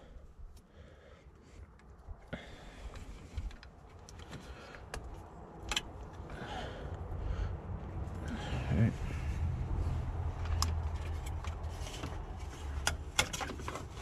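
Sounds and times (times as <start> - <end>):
low rumble: 5.2 - 12.9.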